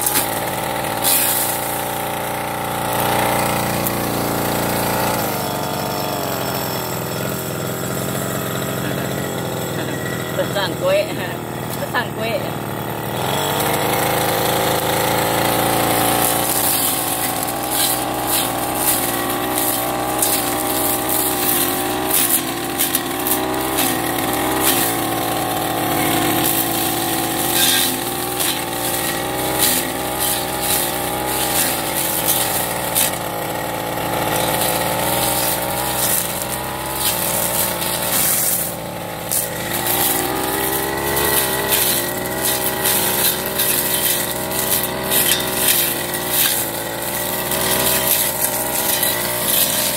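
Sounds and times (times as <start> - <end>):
brush cutter engine running: 0.0 - 49.9
cutting head ticking on stems: 14.5 - 49.9.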